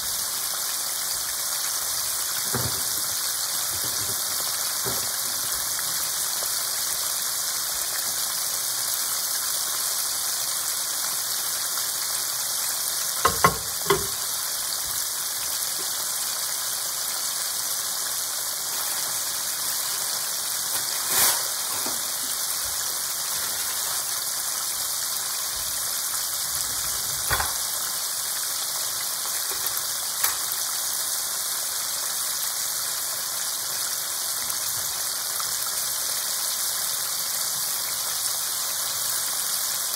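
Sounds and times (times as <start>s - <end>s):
oil bubbling sizzle: 0.0s - 39.9s
oil popping: 13.2s - 14.3s.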